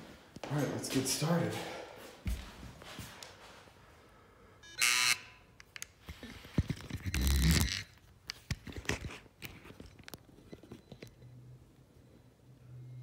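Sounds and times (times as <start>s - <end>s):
electronic timer buzzer: 4.6s - 5.6s
phone being handled: 4.8s - 11.3s.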